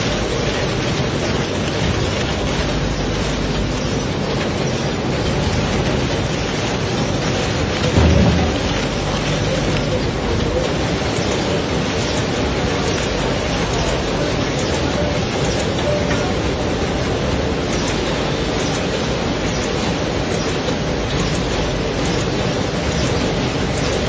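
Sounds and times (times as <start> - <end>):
packing machinery and conveyor: 0.0 - 24.0
short low thump: 8.0 - 9.2.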